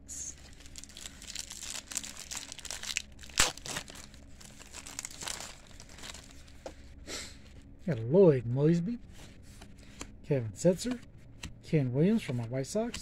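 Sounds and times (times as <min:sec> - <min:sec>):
wrapper crinkling and tearing: 0:00.3 - 0:06.6.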